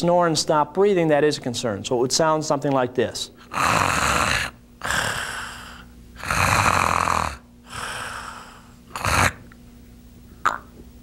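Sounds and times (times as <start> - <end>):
man imitating snoring: 3.5 - 9.5
snort: 3.5 - 9.5.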